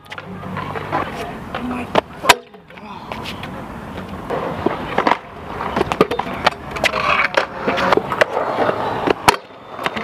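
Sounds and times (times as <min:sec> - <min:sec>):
scooter wheels rolling: 0:00.0 - 0:10.0
scooter deck knocking ground: 0:04.3 - 0:10.0.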